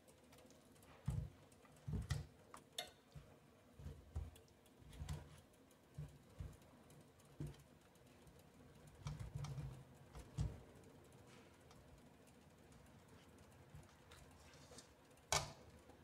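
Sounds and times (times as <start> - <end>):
wire utensil stirring puree in pan: 0.1 - 7.8, 8.6 - 10.8.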